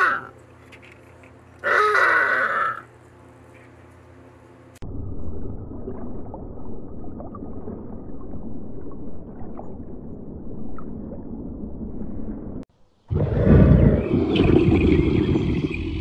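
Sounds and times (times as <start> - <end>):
muffled aquarium water noise: 4.6 - 16.0.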